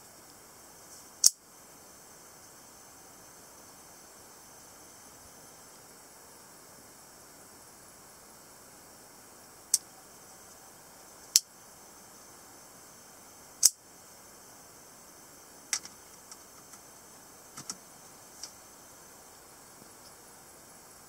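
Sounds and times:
light clicks and taps: 17.6s - 17.8s.

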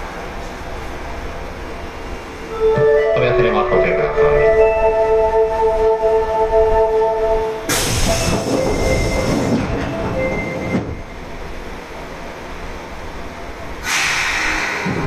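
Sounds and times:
subway train running noise: 0.0s - 15.0s.

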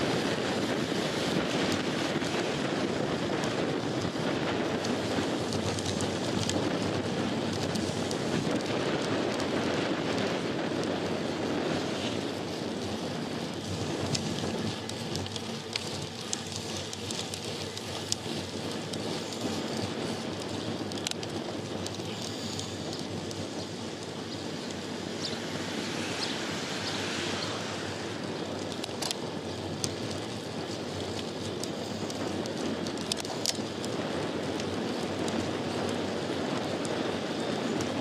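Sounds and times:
bicycle tyre and wind noise: 0.0s - 38.0s
small clicks and rattles: 0.6s - 38.0s
hiss: 25.1s - 28.2s.

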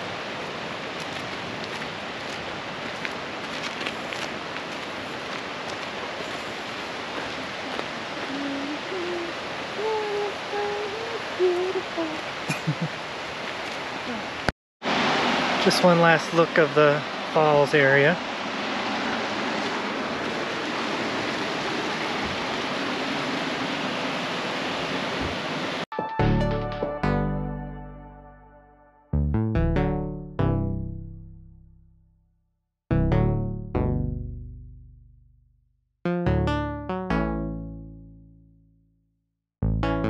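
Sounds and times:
rushing water hiss: 0.0s - 25.8s
person humming low notes: 8.3s - 12.8s.

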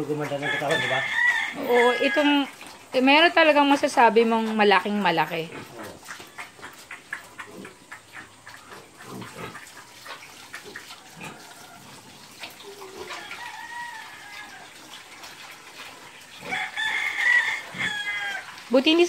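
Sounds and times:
rooster crowing: 0.3s - 2.5s, 13.1s - 14.8s, 16.4s - 18.5s.

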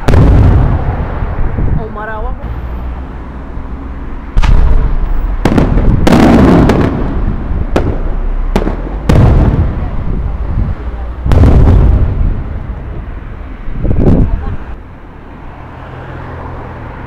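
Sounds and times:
fireworks bursting: 0.0s - 2.0s, 4.4s - 14.7s
firework crackling burst: 4.4s - 10.2s.

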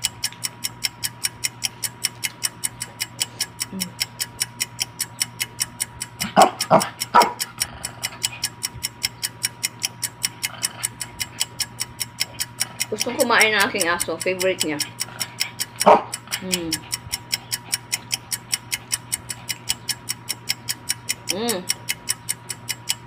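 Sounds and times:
fast even ticking: 0.0s - 23.0s
dog barking: 6.3s - 7.4s, 15.8s - 16.2s.

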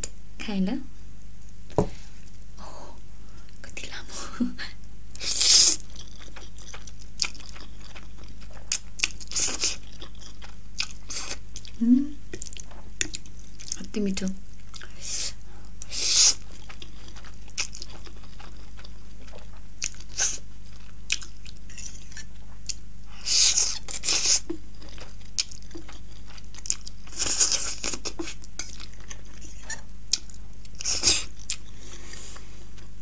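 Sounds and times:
chewing: 5.6s - 13.8s, 15.8s - 22.8s, 23.6s - 32.9s.

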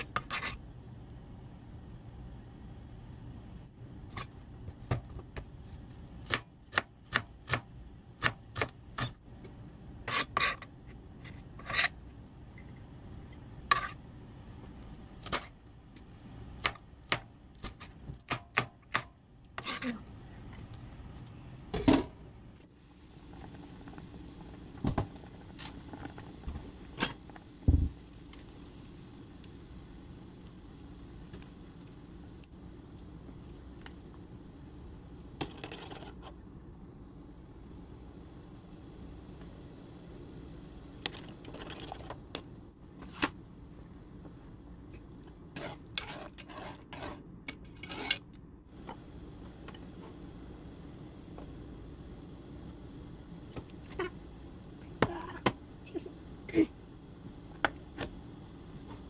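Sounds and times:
pot of stock boiling: 22.2s - 47.4s.

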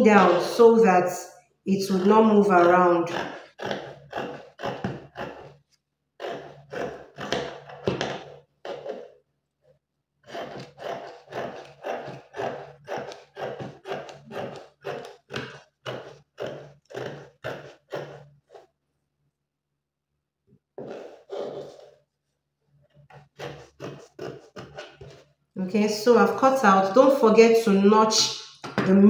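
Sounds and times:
scissors cutting fabric: 0.0s - 0.7s, 1.7s - 5.6s, 6.2s - 9.2s, 10.2s - 18.7s, 22.9s - 25.3s.

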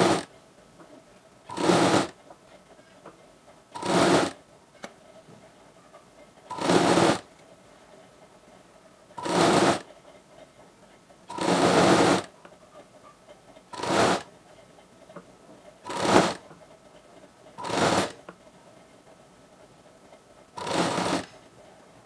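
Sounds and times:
sewing machine running: 0.0s - 0.2s, 1.5s - 2.1s, 3.8s - 4.4s, 6.5s - 7.2s, 9.2s - 9.8s, 11.3s - 12.3s, 13.8s - 14.3s, 15.9s - 16.4s, 17.6s - 18.2s, 20.6s - 21.4s.

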